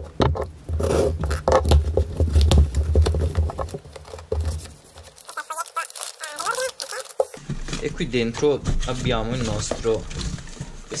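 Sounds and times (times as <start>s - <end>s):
paper rustling: 2.1s - 7.9s.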